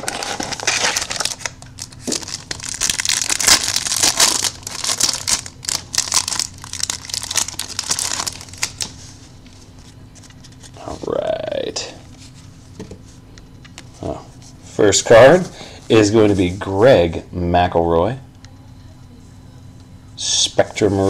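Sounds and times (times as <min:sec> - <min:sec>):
foil wrapper tearing and crinkling: 0:00.0 - 0:08.9.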